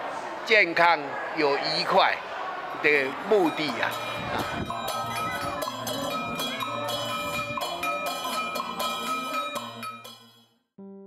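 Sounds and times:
brass handbells ringing: 0:03.2 - 0:10.4.

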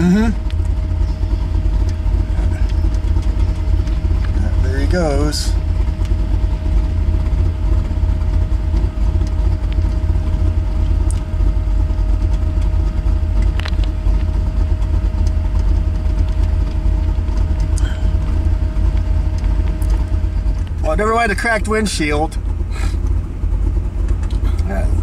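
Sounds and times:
thin steady whine: 0:00.0 - 0:25.0
truck engine running: 0:00.0 - 0:25.0.

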